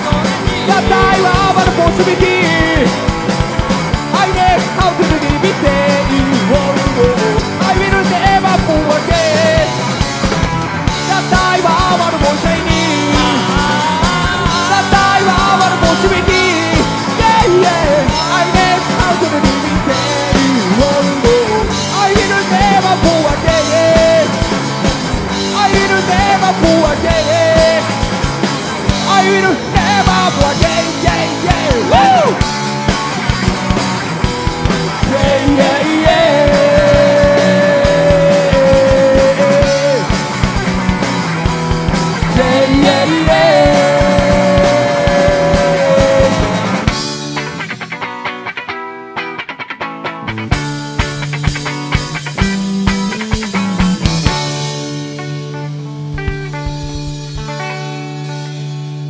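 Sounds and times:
man singing: 0:00.0 - 0:03.2, 0:03.9 - 0:10.0, 0:10.9 - 0:24.7, 0:25.3 - 0:28.3, 0:28.9 - 0:32.6, 0:34.9 - 0:40.6, 0:42.1 - 0:47.0
drum kit: 0:00.0 - 0:59.0
electric guitars: 0:00.0 - 0:59.0.

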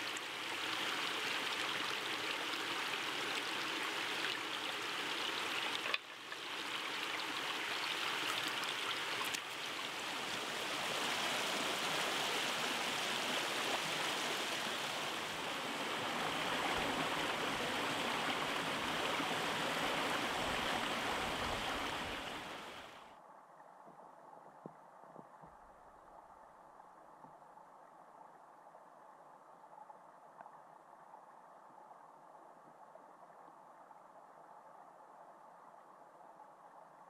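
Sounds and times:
stream splashing over rocks: 0:00.0 - 0:23.0.

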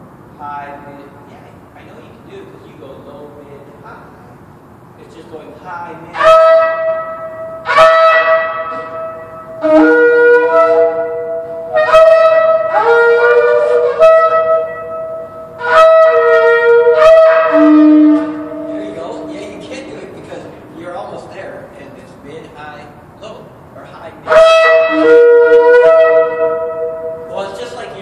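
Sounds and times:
shofar blasts: 0:06.1 - 0:20.4, 0:24.2 - 0:28.0.

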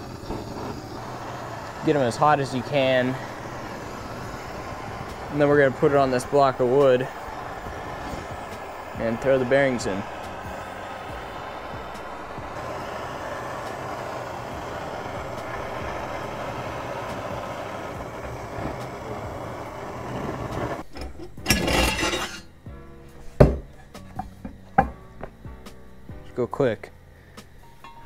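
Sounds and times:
short loud rush: 0:00.0 - 0:20.9
gas torches roaring: 0:00.0 - 0:22.6.

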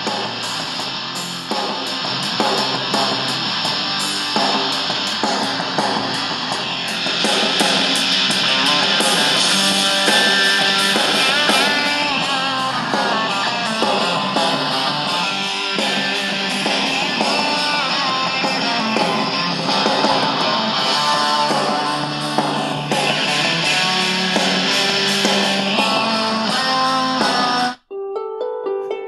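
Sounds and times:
rock music through small speakers: 0:00.0 - 0:27.9.

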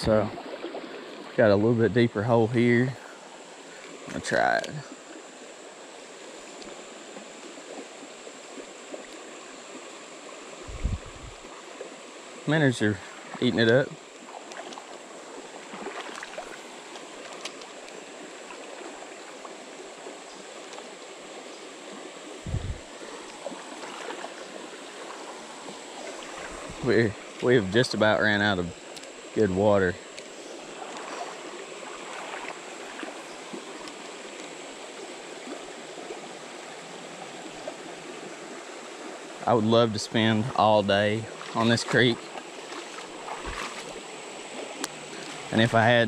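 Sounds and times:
creek water flowing: 0:00.0 - 0:46.0
faint ticks: 0:06.4 - 0:06.8, 0:16.0 - 0:18.0, 0:20.3 - 0:20.9, 0:28.9 - 0:29.2, 0:30.1 - 0:31.2.

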